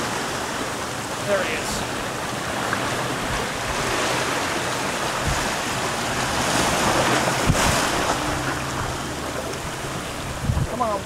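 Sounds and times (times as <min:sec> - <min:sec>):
surf breaking over rocks: 0:00.0 - 0:11.0
wind buffeting microphone: 0:00.0 - 0:11.0.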